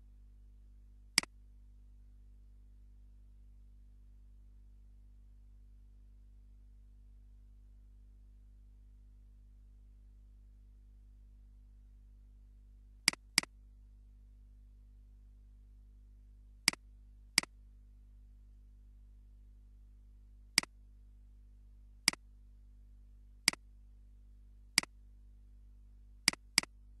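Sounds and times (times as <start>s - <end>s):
low electrical hum: 0.0s - 27.0s
mouse button clicking: 26.3s - 26.7s.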